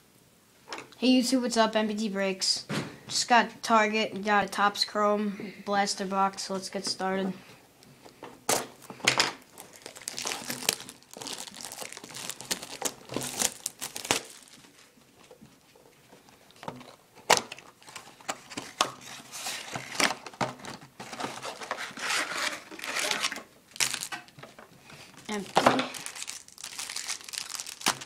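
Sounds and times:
plastic wrap crinkling and tearing: 9.4 - 15.4, 16.5 - 24.5, 25.1 - 28.0.

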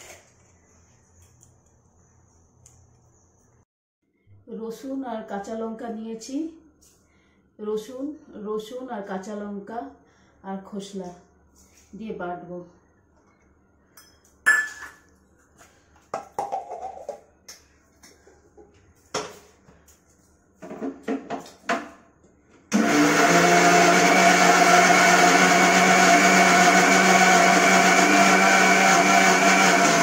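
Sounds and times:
electric mixer grinder running: 22.7 - 30.0.

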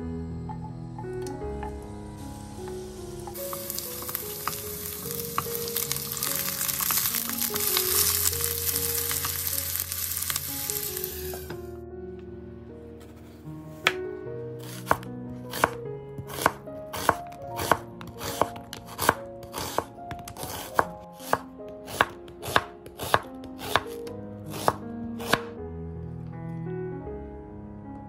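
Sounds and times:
soft background music: 0.0 - 28.0
knife slicing onion on board: 14.6 - 25.5.

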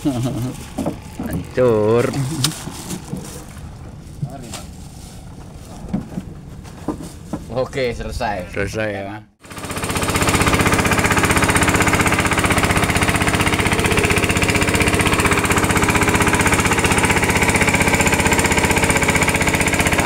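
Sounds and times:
boat engine chugging: 9.4 - 20.0.

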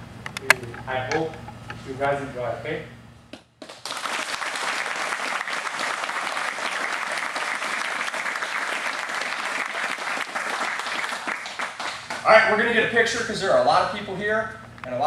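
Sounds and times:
crowd applauding: 3.6 - 12.3.

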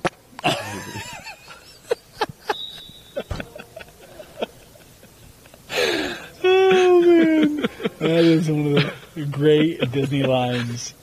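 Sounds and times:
shoe squeaks: 2.5 - 3.4.

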